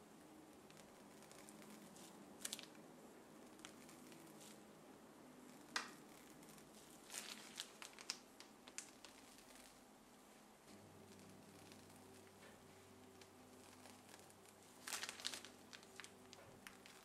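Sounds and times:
low room hum: 0.0s - 17.0s
piping bag squishing: 0.5s - 4.6s, 5.5s - 9.8s, 10.7s - 17.0s.

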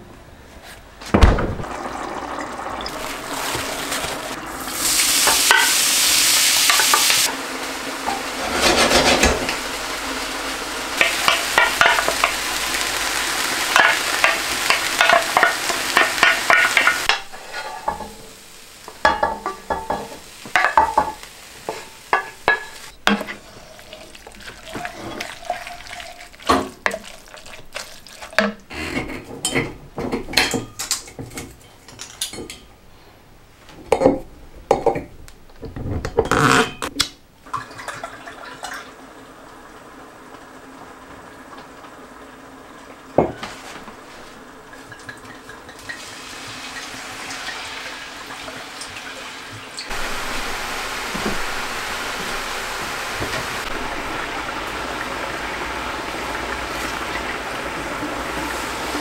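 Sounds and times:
wine boiling hiss: 1.6s - 28.8s, 38.2s - 59.0s
wooden spoon scraping a pot: 8.4s - 9.4s, 16.5s - 18.0s, 23.1s - 29.2s.

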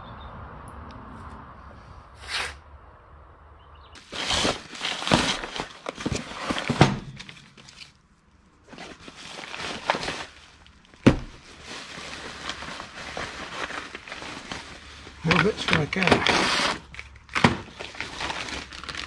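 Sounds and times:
packaging rustling and crinkling: 4.0s - 8.0s, 8.6s - 19.0s
cardboard box knock: 11.0s - 11.3s.

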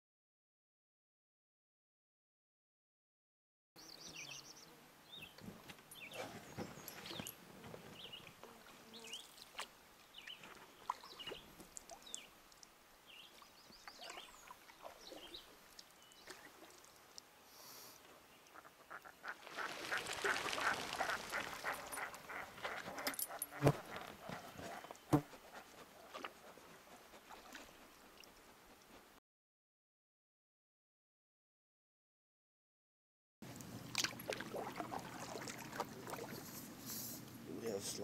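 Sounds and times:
birds calling and chirping: 3.8s - 8.3s, 18.4s - 25.2s.

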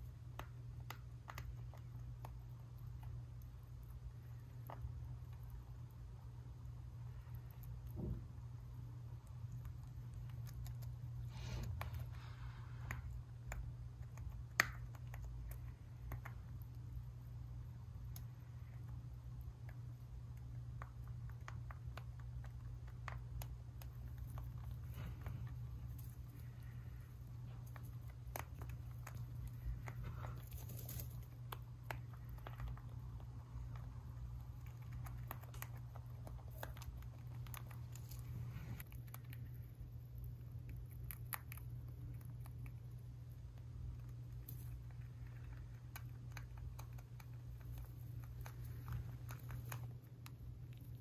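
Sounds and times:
low hum: 0.0s - 51.0s
rabbit chewing feed pellets: 0.0s - 51.0s.

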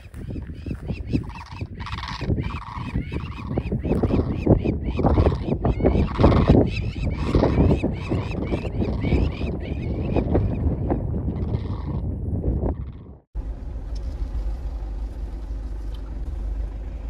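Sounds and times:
cranes honking calls: 0.0s - 10.5s, 11.4s - 12.0s
wind buffeting microphone: 0.0s - 13.3s.

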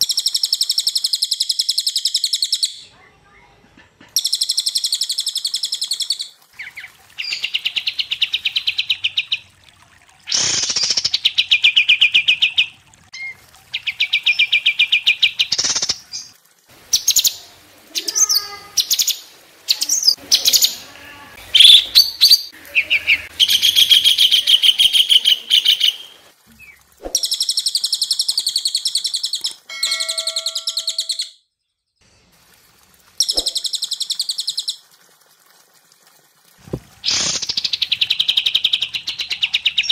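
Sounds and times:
songbird rattling trills: 26.6s - 31.4s, 33.2s - 34.8s
bird whistles and chips: 33.2s - 34.7s.

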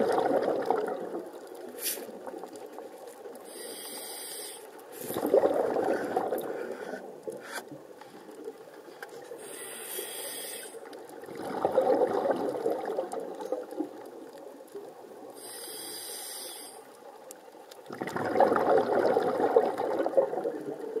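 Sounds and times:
exhaled air bubbling: 0.0s - 7.5s, 9.4s - 17.0s, 17.8s - 21.0s
regulator inhale hiss: 1.8s - 2.2s, 3.5s - 5.1s, 9.4s - 10.9s, 15.4s - 16.9s.

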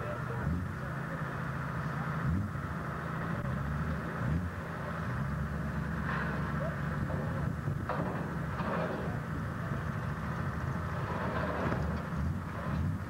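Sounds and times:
truck engine idling and revving: 0.0s - 13.0s.

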